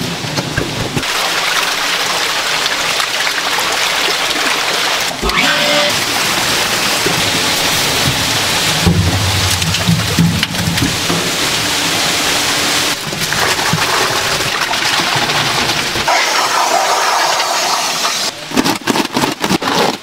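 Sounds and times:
water splashing and rushing: 0.0s - 18.8s
low steady hum: 8.0s - 13.4s.

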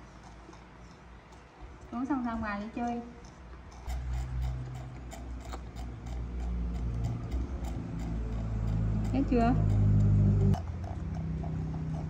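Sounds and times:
monkey sucking on bottle: 3.0s - 12.0s.

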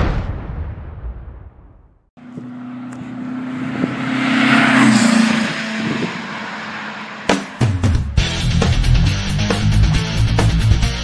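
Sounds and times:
vehicle engine passing by: 2.2s - 8.5s.

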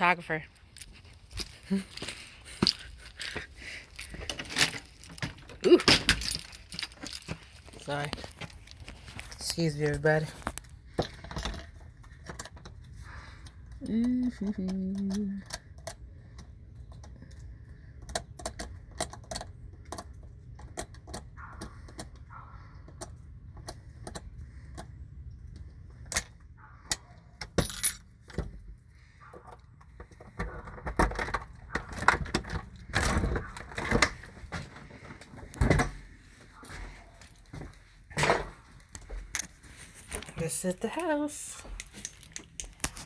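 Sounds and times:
keys clicking in a lock: 1.3s - 9.5s, 10.4s - 28.1s, 41.7s - 43.0s
door rattling open: 30.5s - 34.3s.

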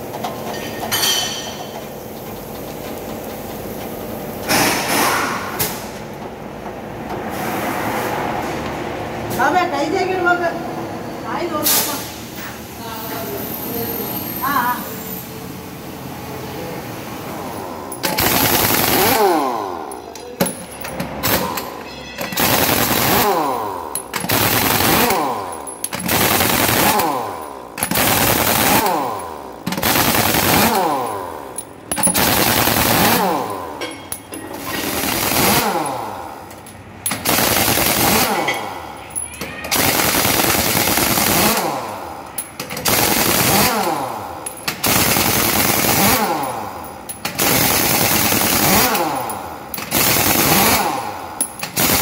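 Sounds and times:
pneumatic impact wrench rattling: 0.0s - 6.1s, 17.6s - 52.0s.

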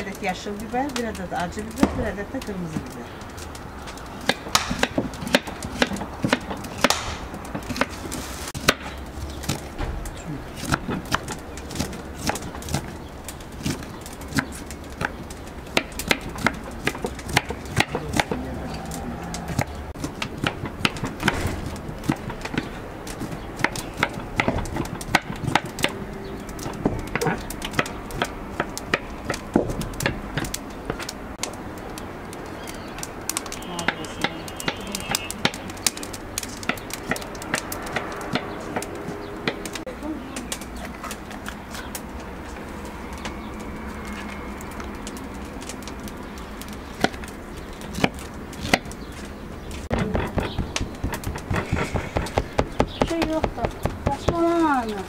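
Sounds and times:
knife chopping on wooden board: 49.9s - 54.4s.

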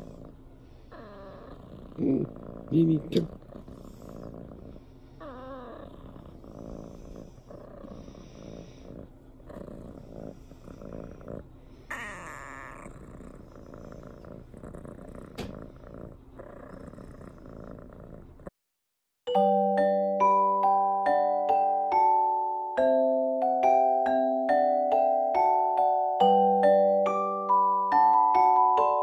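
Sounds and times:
kitten purring: 0.0s - 18.6s.

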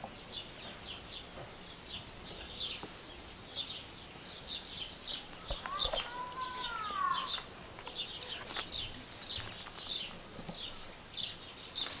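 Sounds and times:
small songbirds chirping: 0.0s - 12.0s
lower arching bird call: 5.6s - 7.4s.

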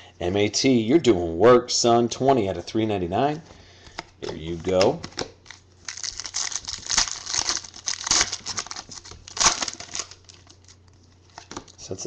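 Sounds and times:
foil wrapper tearing and crinkling: 5.4s - 10.9s.

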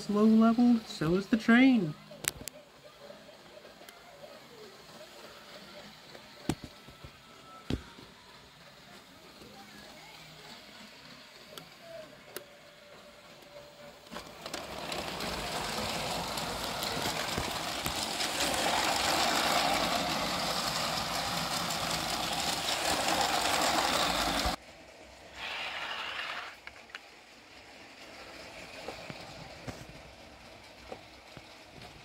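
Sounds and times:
toy train motor whirring: 0.0s - 32.0s
toy train wheels rattling on track: 8.2s - 32.0s.

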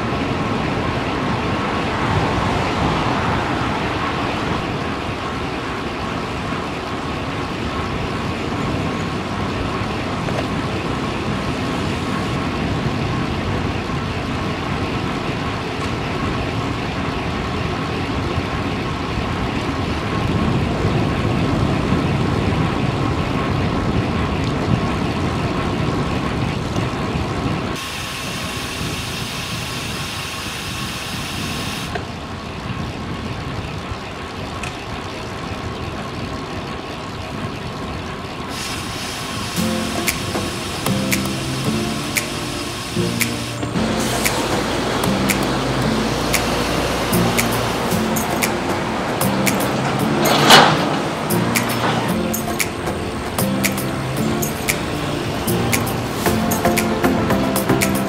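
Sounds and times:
low rushing: 0.0s - 15.3s, 39.5s - 58.0s
highway traffic passing: 0.0s - 58.0s
high-pitched noise: 39.4s - 58.0s.

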